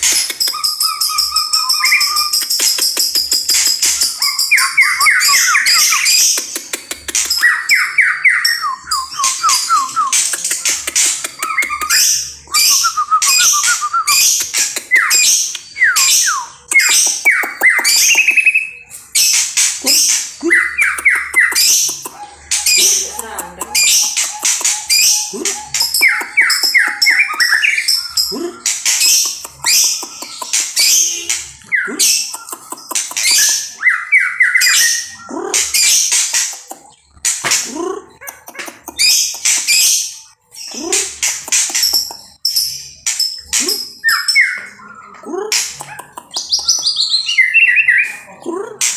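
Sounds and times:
bird singing varied song: 0.0s - 48.9s
songbird singing loudly: 4.0s - 6.4s.

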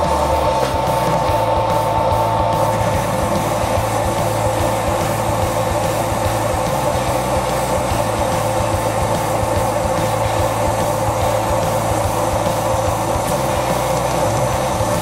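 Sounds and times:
low drive hum: 0.0s - 15.0s
metal lathe running: 0.0s - 15.0s.

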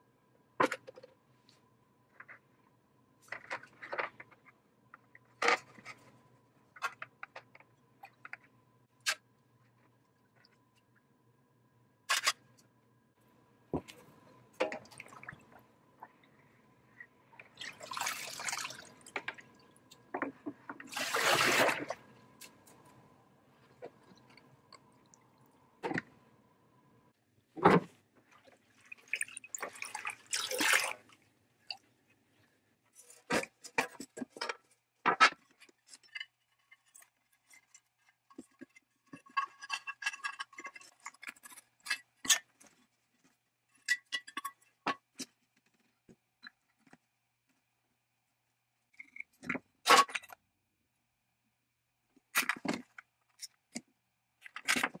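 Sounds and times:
liquid splashing and pouring: 14.6s - 15.6s, 17.4s - 19.7s, 20.8s - 22.1s, 28.4s - 31.8s.

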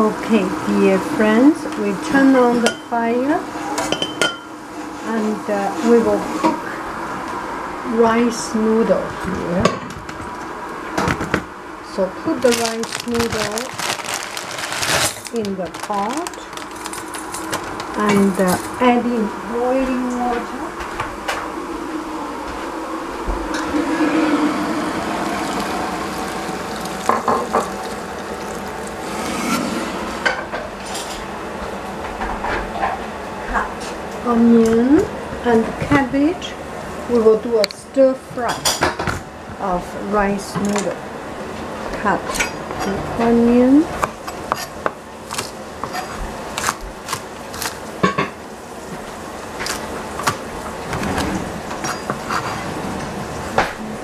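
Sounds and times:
water pouring into a saucepan: 24.3s - 29.4s.

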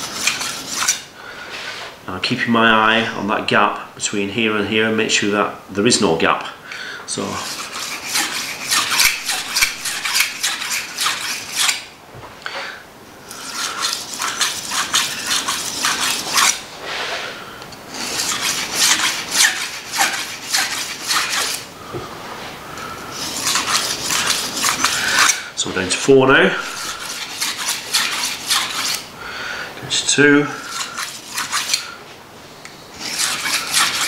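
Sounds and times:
knife scraping on sharpening stone: 0.0s - 1.1s, 7.3s - 11.8s, 13.3s - 16.6s, 17.9s - 21.7s, 23.1s - 25.5s, 26.5s - 29.1s, 30.6s - 31.9s, 32.9s - 34.0s.

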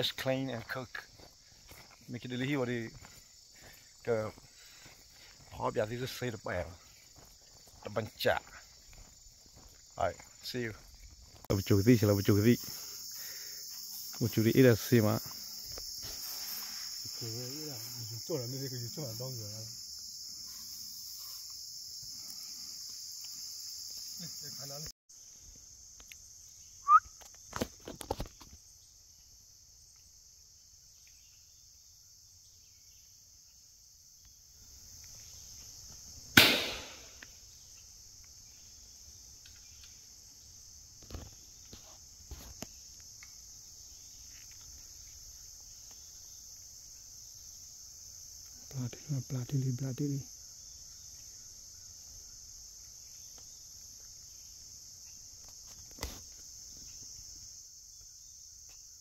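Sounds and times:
insects droning: 0.0s - 59.0s
short chirp: 26.8s - 27.2s
rifle shot echoing: 36.4s - 37.2s.

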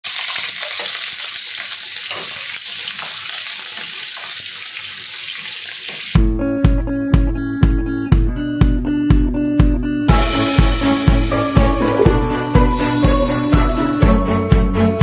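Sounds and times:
onions sizzling in oil: 0.0s - 6.2s, 12.8s - 14.2s
music with steady beat: 6.2s - 15.0s.

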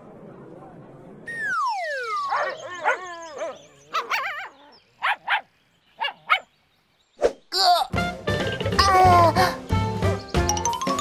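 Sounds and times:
falling cartoon whistle: 1.3s - 2.8s
dog barking: 2.3s - 6.5s.

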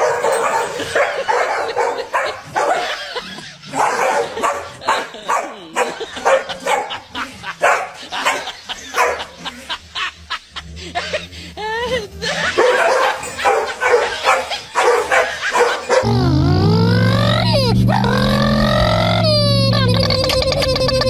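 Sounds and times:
dogs barking: 0.0s - 10.4s, 12.2s - 16.1s.

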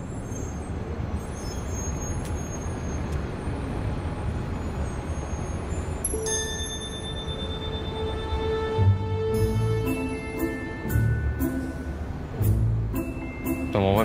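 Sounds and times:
low street rumble: 0.0s - 14.0s
held music tone: 6.1s - 14.0s.

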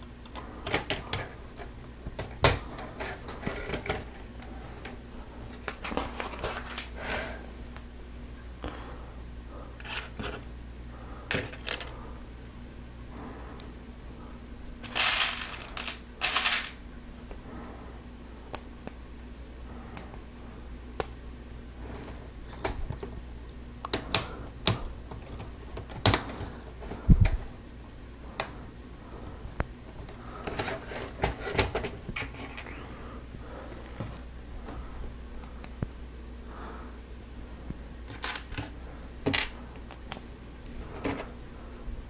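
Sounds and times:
loose plastic pieces rattling: 0.2s - 5.0s, 9.8s - 10.4s, 14.8s - 16.8s, 30.0s - 32.7s.

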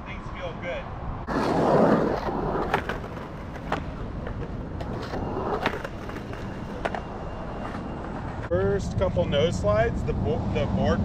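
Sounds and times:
skateboard wheels rolling on asphalt: 1.2s - 9.6s
skateboard sliding on curb: 1.3s - 8.5s
skateboard clacking on curb: 2.2s - 8.5s.

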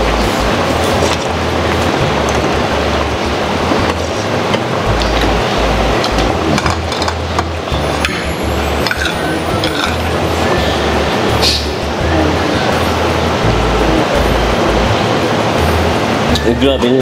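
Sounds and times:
loud steady hiss: 0.0s - 17.0s
metal utensils clinking on bowls: 6.0s - 10.9s.

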